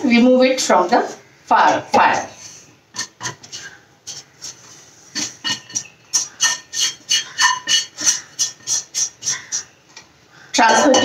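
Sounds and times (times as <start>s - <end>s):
spatula scraping pan: 1.7s - 9.8s, 10.6s - 11.0s.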